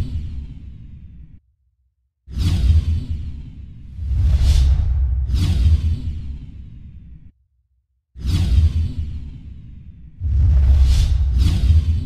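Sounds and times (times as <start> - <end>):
low rumble: 4.0 - 6.5, 10.2 - 12.0.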